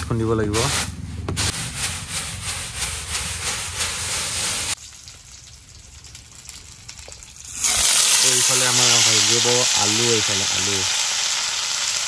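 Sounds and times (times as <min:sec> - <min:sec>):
rice rustling in winnowing tray: 0:00.4 - 0:04.8, 0:07.9 - 0:10.9.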